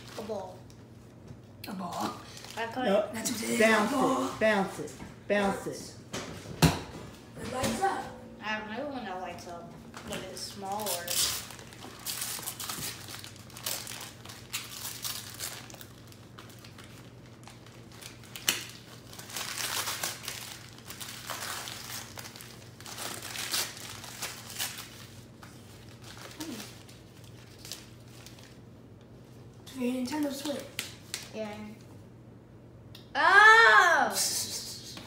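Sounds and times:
wrapping paper crinkling and tearing: 0.0 - 0.8, 1.9 - 2.8, 10.1 - 28.6, 30.0 - 31.4.

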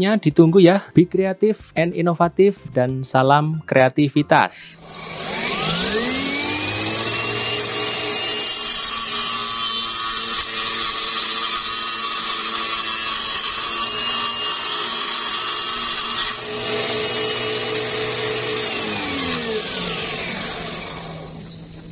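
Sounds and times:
saw motor winding down: 4.7 - 21.9
table saw blade whining: 4.8 - 21.9.

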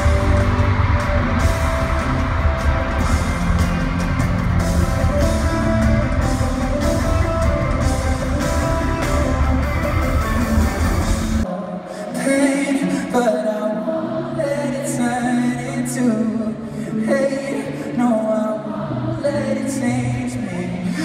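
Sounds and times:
audience singing along: 0.0 - 5.2, 10.6 - 16.2, 17.0 - 21.0
male singer singing: 11.5 - 21.0.

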